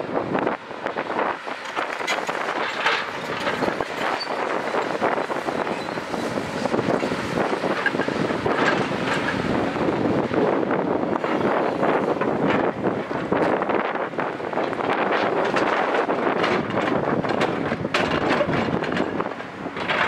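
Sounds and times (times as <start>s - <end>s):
excavator diesel engine under load: 0.0s - 20.0s
wind buffeting microphone: 0.0s - 20.0s
clanks and knocks: 1.6s - 4.9s, 14.9s - 20.0s.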